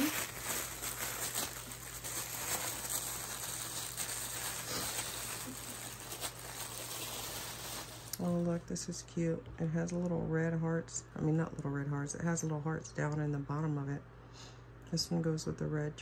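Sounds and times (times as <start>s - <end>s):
packaging rustling and crinkling: 0.0s - 8.3s.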